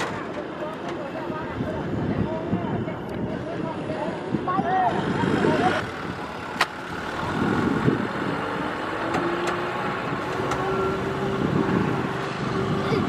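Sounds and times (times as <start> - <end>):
tractor diesel engine straining: 0.0 - 13.0.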